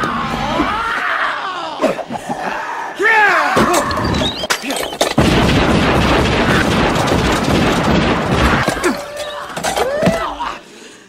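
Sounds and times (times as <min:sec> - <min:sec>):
shotgun bangs: 0:05.2 - 0:08.9.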